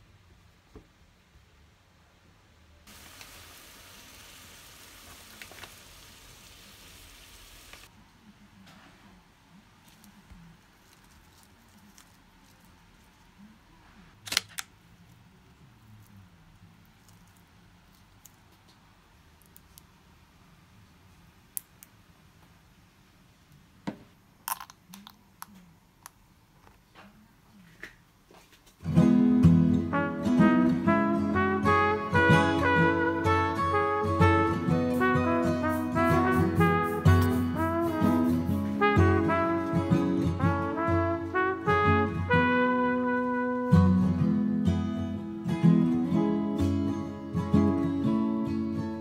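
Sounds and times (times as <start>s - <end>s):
water boiling with pops: 2.9s - 7.9s
soft handling sounds: 8.3s - 20.0s.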